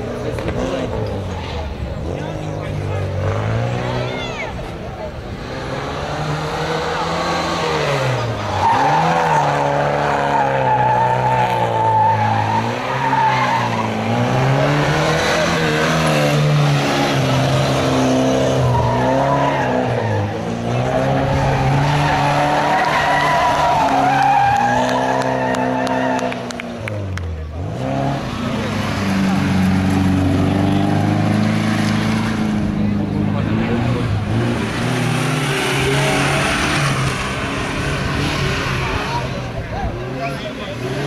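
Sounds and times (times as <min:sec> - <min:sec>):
car engine revving hard: 0:02.0 - 0:04.3, 0:05.3 - 0:41.0
tyres squealing: 0:08.4 - 0:26.3.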